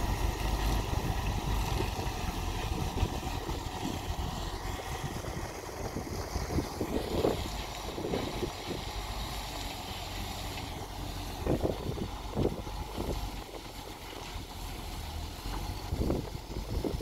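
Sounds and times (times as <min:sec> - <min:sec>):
diesel engine running: 0:00.0 - 0:17.0
wind buffeting microphone: 0:00.8 - 0:09.1, 0:11.3 - 0:13.8, 0:15.7 - 0:17.0.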